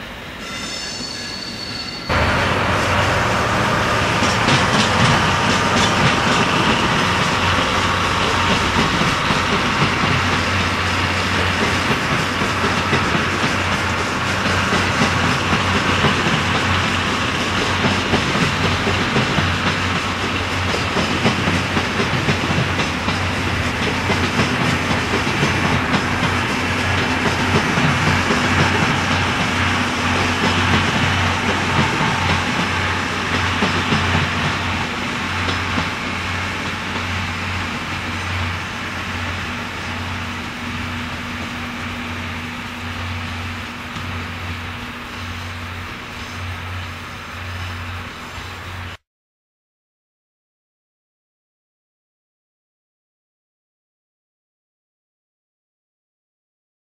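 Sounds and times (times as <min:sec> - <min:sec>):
train wheels clacking over joints: 0:02.2 - 0:44.4.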